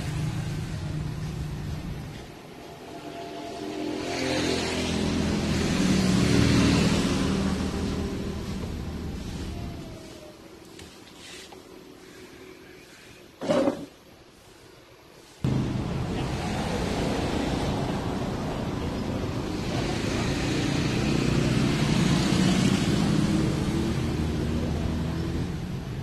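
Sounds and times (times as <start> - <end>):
vehicle engine running: 15.5 - 25.8.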